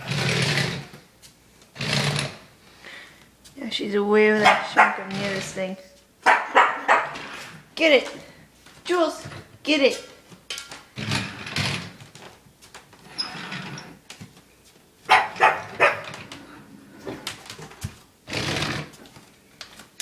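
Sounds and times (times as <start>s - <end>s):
dog barking: 4.4s - 5.1s, 6.2s - 7.2s, 15.1s - 16.1s.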